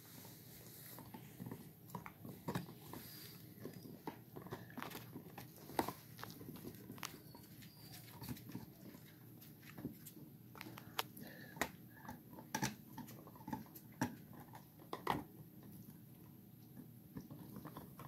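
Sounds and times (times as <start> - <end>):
teeth scraping and clicking on bones: 3.6 - 9.1, 10.6 - 15.3.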